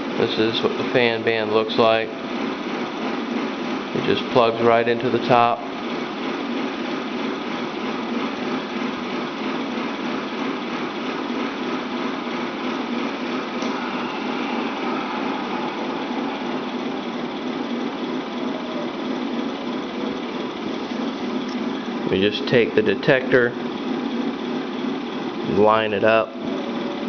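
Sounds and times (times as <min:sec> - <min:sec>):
model tanks idling drone: 0:10.9 - 0:27.0.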